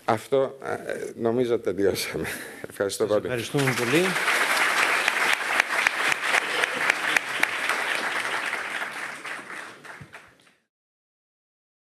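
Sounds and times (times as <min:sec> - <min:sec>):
audience applauding: 0:03.4 - 0:10.6.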